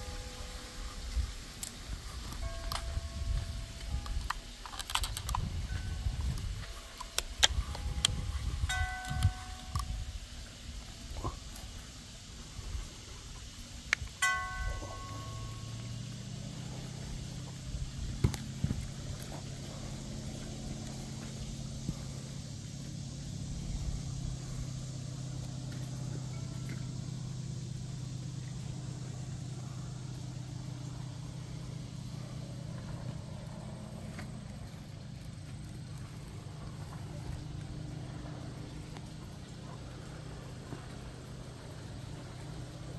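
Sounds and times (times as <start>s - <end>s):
motor humming: 0.0s - 42.9s
sharp clicks: 1.6s - 10.0s.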